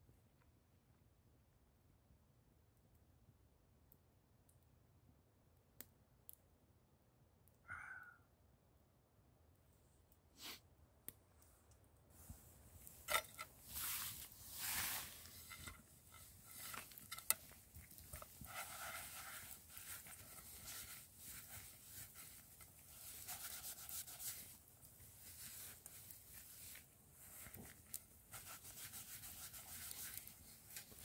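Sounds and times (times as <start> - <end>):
gritty scraping in metal pan: 12.8 - 20.5.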